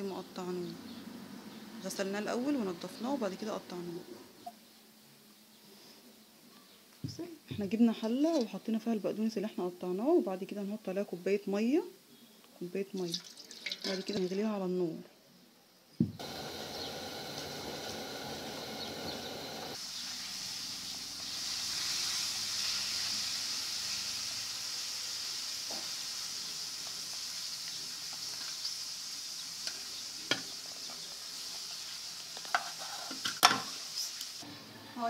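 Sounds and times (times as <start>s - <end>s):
steady kitchen hiss: 0.0s - 15.4s, 16.0s - 35.0s.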